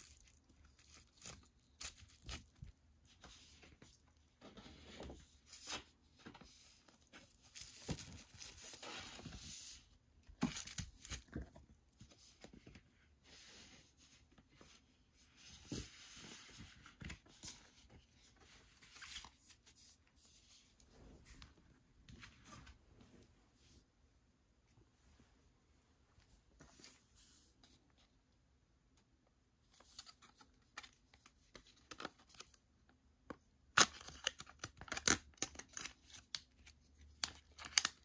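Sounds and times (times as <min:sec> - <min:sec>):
plastic packaging crinkling and tearing: 0:00.0 - 0:02.7, 0:07.5 - 0:08.8, 0:33.8 - 0:38.0.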